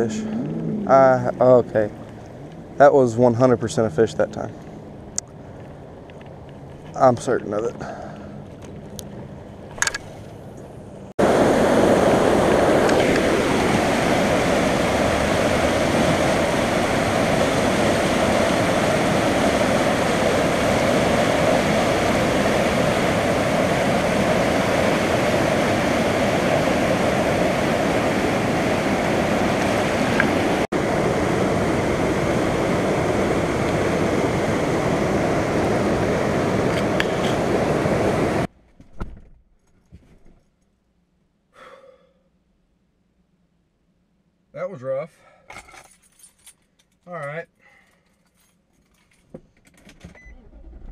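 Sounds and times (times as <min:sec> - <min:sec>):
floodwater roaring: 0:00.0 - 0:38.5.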